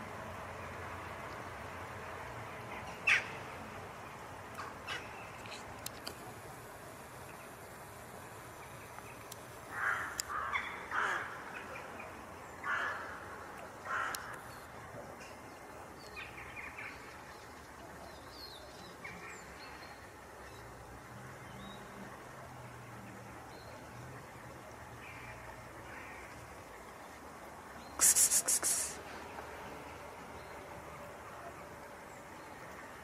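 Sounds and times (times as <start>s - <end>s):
short animal calls: 28.0s - 29.0s.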